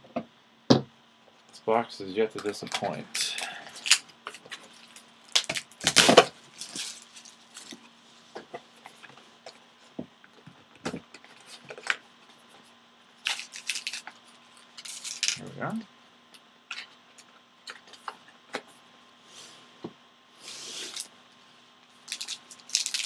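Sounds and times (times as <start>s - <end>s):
plastic shrink wrap tearing: 2.4s - 7.8s, 13.2s - 14.2s, 22.0s - 23.0s.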